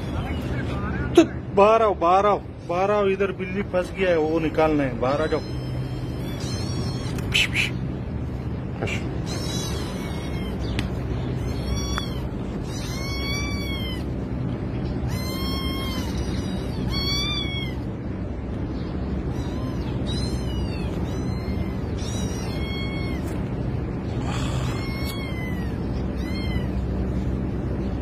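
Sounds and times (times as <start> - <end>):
kitten meowing in distress: 5.2 - 7.4, 9.2 - 10.8, 11.4 - 14.1, 15.0 - 17.9, 19.3 - 23.5, 24.2 - 26.8.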